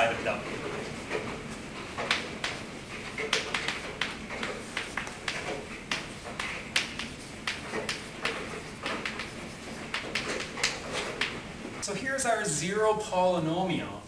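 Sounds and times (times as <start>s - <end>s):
chalk writing on blackboard: 2.1s - 11.4s.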